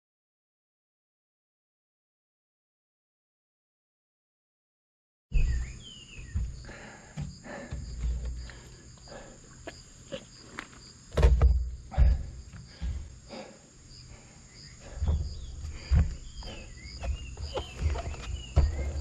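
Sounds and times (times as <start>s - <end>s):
insects chirping: 5.3s - 19.0s
low rumbling thumps and knocks: 5.4s - 8.6s, 11.1s - 13.2s, 14.8s - 19.0s.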